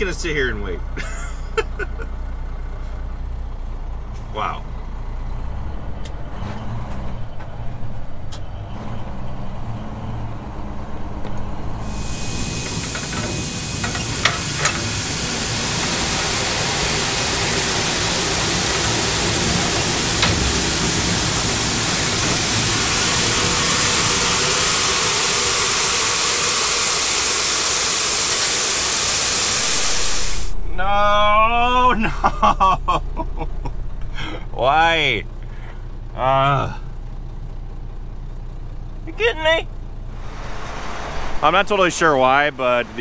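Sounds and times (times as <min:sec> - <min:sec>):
truck engine rumble: 0:00.0 - 0:43.0
grain pouring through grate: 0:12.3 - 0:30.3.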